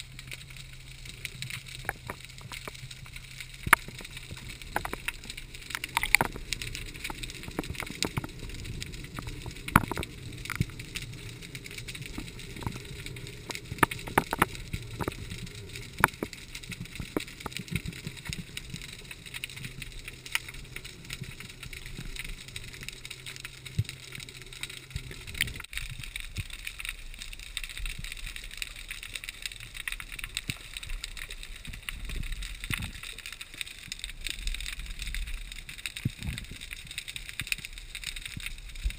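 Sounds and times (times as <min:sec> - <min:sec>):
low hum: 0:00.0 - 0:26.1
sharp clicks and crackles: 0:00.0 - 0:38.9.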